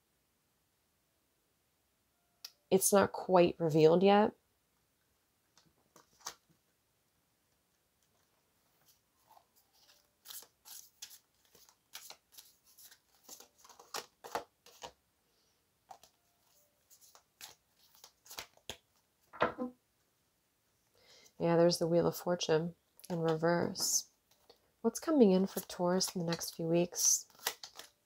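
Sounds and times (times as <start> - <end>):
cards being shuffled: 5.9 - 6.4, 8.0 - 15.0, 15.9 - 16.2, 16.9 - 19.0, 23.0 - 24.5, 25.4 - 28.0.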